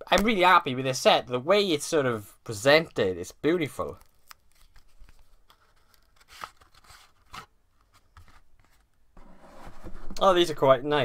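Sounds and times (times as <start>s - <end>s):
card and paper rustling: 3.8s - 9.0s.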